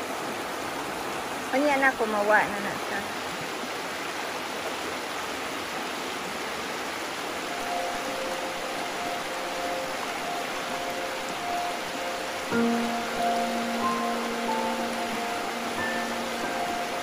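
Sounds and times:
river water rushing: 0.0 - 17.0
faint music: 7.3 - 17.0.

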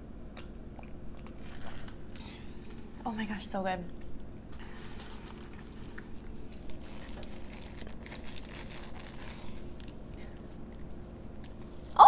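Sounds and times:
paper wrapper crinkling: 4.5 - 12.0.

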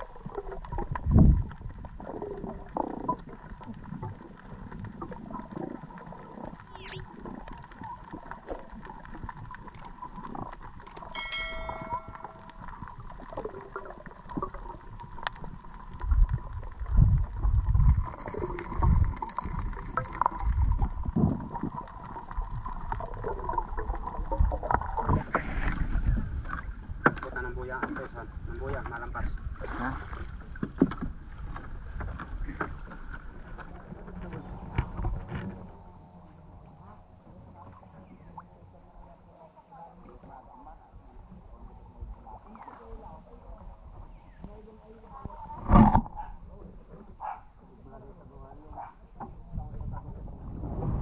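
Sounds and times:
underwater gurgling: 0.0 - 51.0
ringing tone: 11.1 - 12.8.

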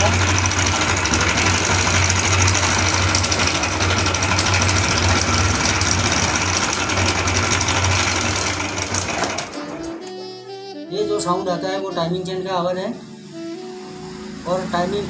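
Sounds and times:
motorcycle engine running: 0.0 - 9.5
fast metallic rattle: 0.0 - 9.6.

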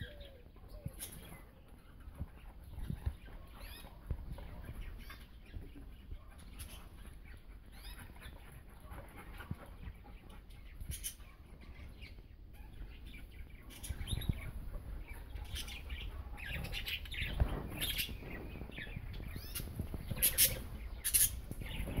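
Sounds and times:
budgerigars chirping: 10.6 - 22.0.

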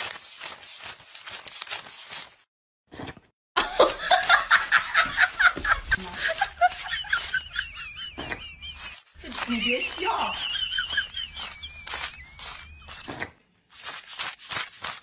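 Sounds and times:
person laughing in rapid pulses: 3.6 - 13.1.

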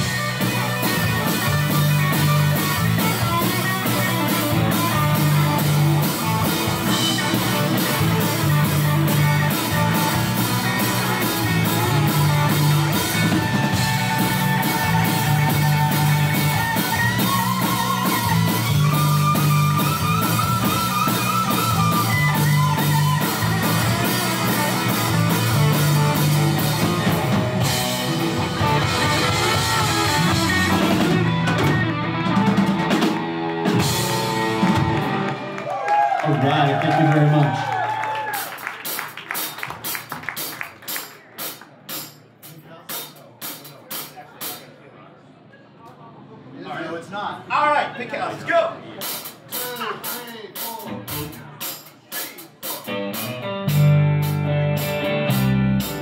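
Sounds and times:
wavering lead guitar line: 0.0 - 35.7, 52.9 - 56.0
live rock band instrumental: 0.0 - 36.3, 36.9 - 44.7, 49.0 - 56.0.

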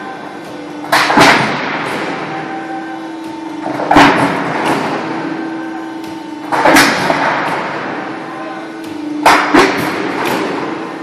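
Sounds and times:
machine hum: 0.0 - 11.0
press striking metal sheet: 0.8 - 2.4, 6.0 - 8.2, 9.0 - 11.0.

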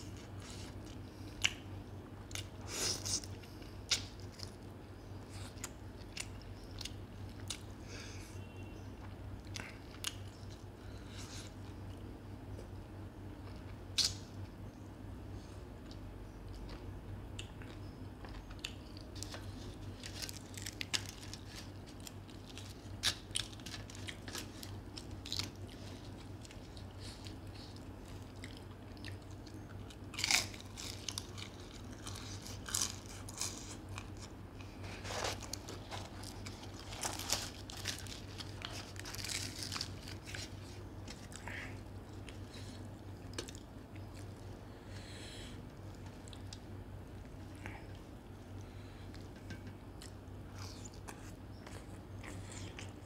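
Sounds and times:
low steady hum: 0.0 - 53.0
man chewing and lip smacking: 13.4 - 14.2.

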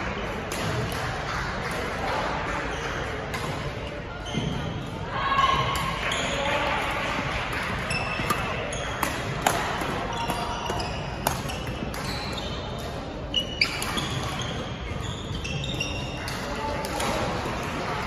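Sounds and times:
sneakers squeaking on floor: 2.6 - 6.6, 7.7 - 16.6
racket striking shuttlecock: 8.1 - 12.1.

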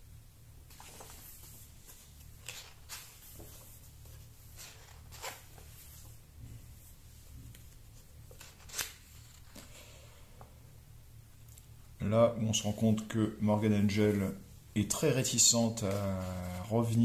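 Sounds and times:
faint low hum: 0.0 - 17.0
book pages turning: 0.7 - 6.2, 7.5 - 9.8, 15.7 - 17.0.

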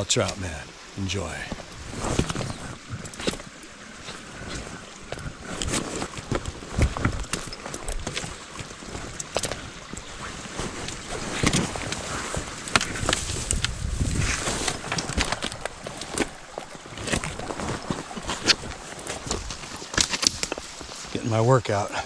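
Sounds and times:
footsteps on uneven ground: 1.4 - 21.3
rustling: 1.5 - 21.2
wind rumble on microphone: 9.8 - 15.7.

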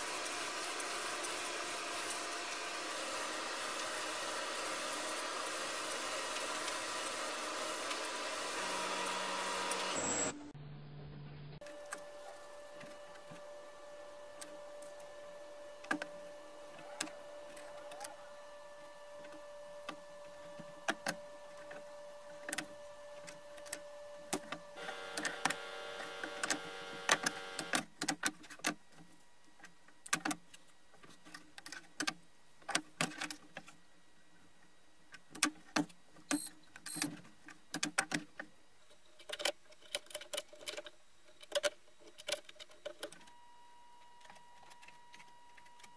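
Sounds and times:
steady hum: 10.3 - 31.5.

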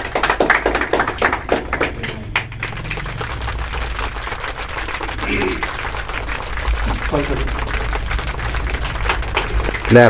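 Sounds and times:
audience applause: 0.0 - 10.0
person speaking: 5.1 - 5.7.

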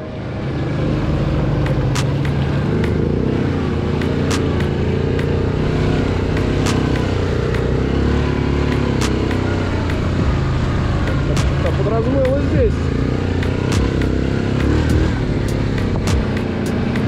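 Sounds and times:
quad engine running: 0.0 - 17.0
sharp clicks: 1.9 - 2.4, 4.0 - 4.7, 6.4 - 7.1.

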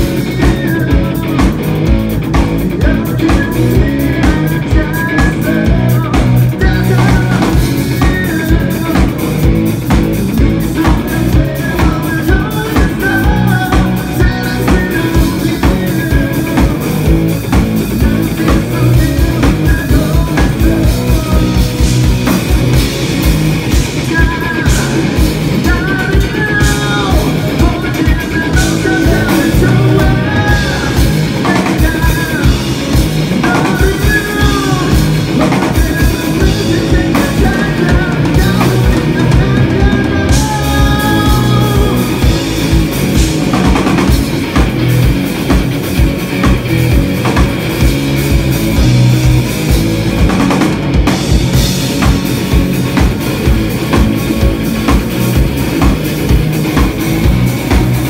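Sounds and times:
person singing lead vocal: 0.0 - 22.5, 23.7 - 44.2
distorted electric guitar: 0.0 - 58.0
pounding drum kit: 0.0 - 58.0.

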